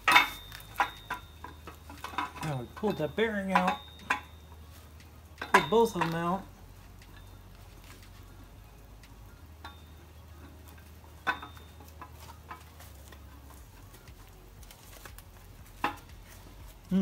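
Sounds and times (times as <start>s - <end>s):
metal tools clinking: 0.0s - 8.4s, 9.6s - 16.9s
faint low hum: 0.0s - 17.0s.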